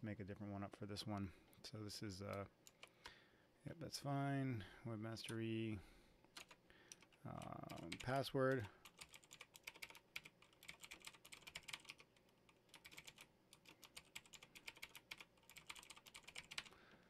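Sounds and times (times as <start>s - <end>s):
computer keyboard typing: 2.6s - 2.9s, 6.3s - 16.8s.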